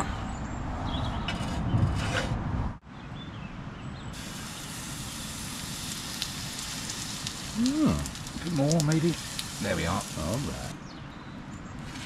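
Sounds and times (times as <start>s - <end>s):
batter sizzling in hot pan: 4.2s - 10.7s
background hiss: 4.2s - 10.8s.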